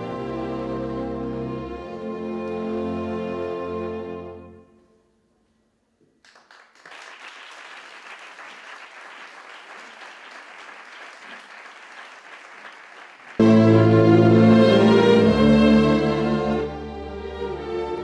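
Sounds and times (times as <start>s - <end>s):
loud string music: 0.0s - 4.6s, 13.4s - 18.0s
audience applauding: 6.2s - 13.5s.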